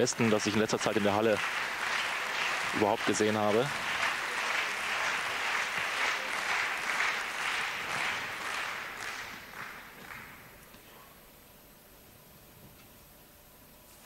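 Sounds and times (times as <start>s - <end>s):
crowd applauding: 0.0s - 10.7s.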